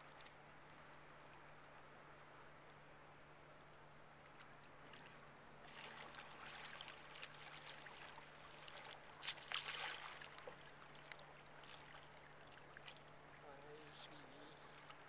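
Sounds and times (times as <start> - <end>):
paddle splashing in water: 4.2 - 13.4, 14.6 - 15.0.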